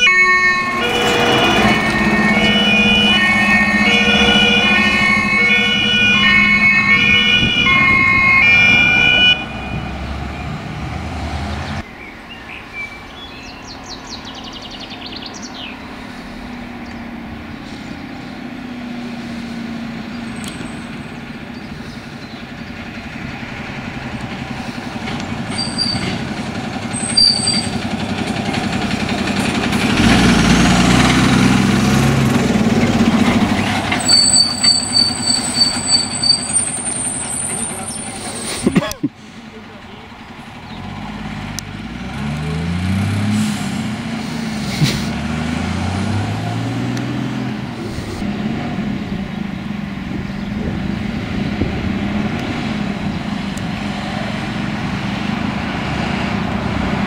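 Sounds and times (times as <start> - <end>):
short high beeps: 0.0 - 10.6, 34.0 - 36.7
two-tone emergency siren: 0.0 - 11.0, 33.7 - 37.3
fire engine passing: 0.0 - 57.0
heavy truck engine: 0.0 - 57.0.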